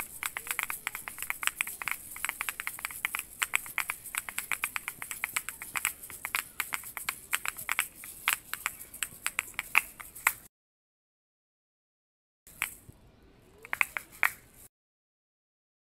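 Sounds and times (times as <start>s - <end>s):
shaker filling rattling: 0.0s - 10.5s, 13.6s - 14.6s
shaker shells clacking: 0.0s - 10.5s, 12.5s - 12.8s, 13.6s - 14.6s.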